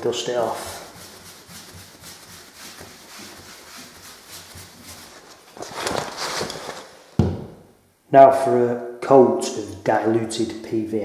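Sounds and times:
hand swishing over wall: 0.0 - 7.2.

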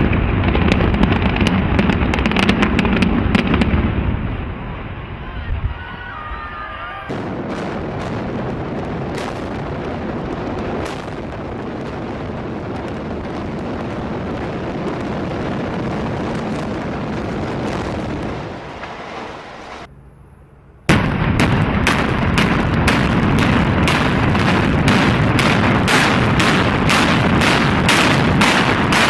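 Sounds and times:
demolition charge bangs: 7.1 - 18.8, 20.9 - 29.0.

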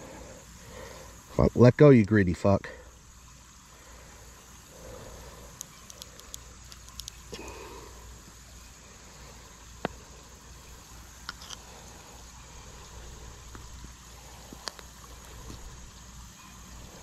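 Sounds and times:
low steady rumble: 0.0 - 17.0
small metal clicks and taps: 5.6 - 7.2.

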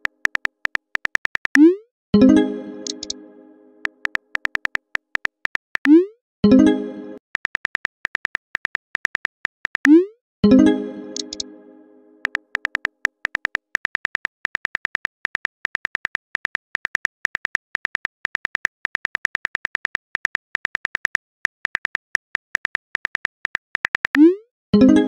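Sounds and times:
phone keyboard typing clicks: 0.0 - 1.7, 2.8 - 3.2, 3.8 - 6.0, 7.4 - 10.0, 11.1 - 11.4, 12.2 - 24.3.

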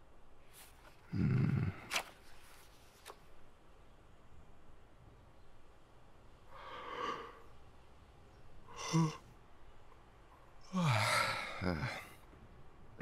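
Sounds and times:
young man sighing: 1.1 - 1.9.

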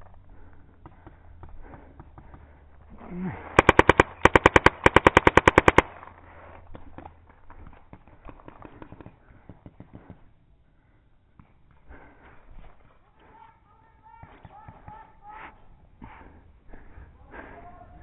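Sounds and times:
paintball marker firing: 3.4 - 6.1, 6.7 - 10.3.

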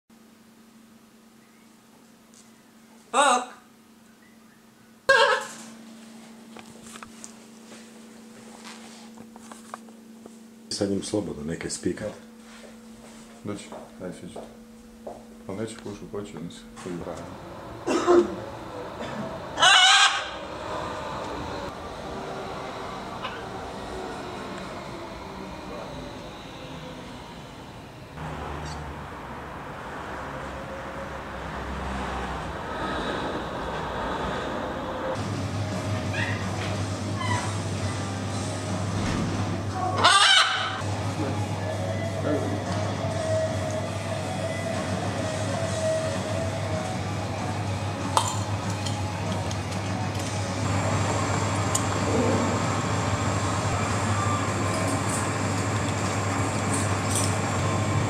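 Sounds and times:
room noise hum and hiss: 0.1 - 19.3
low rumble of street traffic: 13.5 - 58.0.

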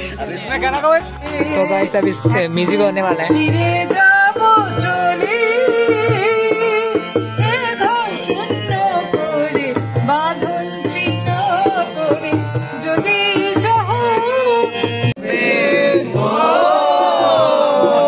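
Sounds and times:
harmonium: 0.0 - 18.0
tabla drumming: 0.0 - 18.0
woman singing: 3.4 - 15.1
men singing in unison: 14.8 - 18.0.

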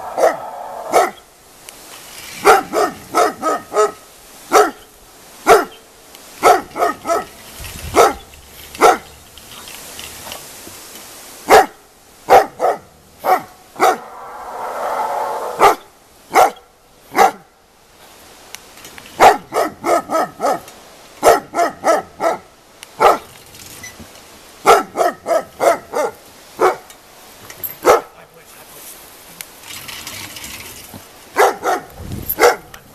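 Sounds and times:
dog barking sharply: 0.0 - 1.2, 5.5 - 5.7, 6.4 - 7.3, 11.5 - 14.1, 23.0 - 23.2, 24.7 - 26.8, 27.8 - 28.1, 31.4 - 32.7.

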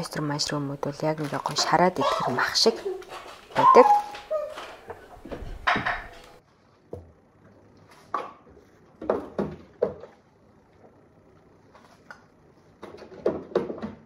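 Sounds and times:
plastic bag rustling: 1.1 - 6.4
containers knocking in fridge: 3.1 - 6.4.

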